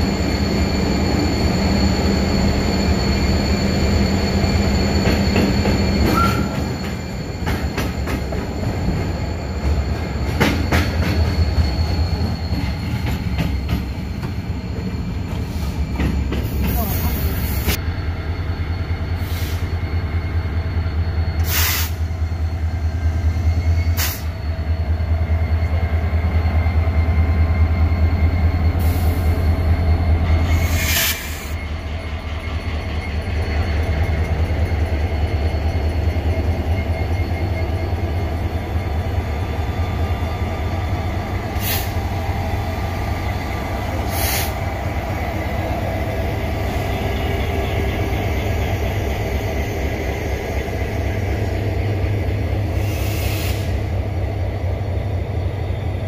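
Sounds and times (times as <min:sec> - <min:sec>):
locomotive engines idling: 0:00.0 - 0:56.0
short sharp hisses: 0:21.4 - 0:22.0, 0:52.8 - 0:53.8.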